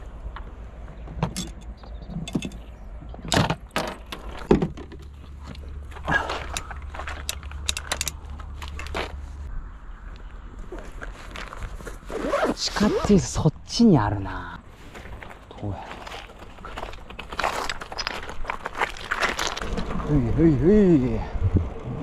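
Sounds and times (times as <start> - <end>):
folding bicycle metallic clicks and rattles: 1.2 - 2.6, 6.3 - 9.2.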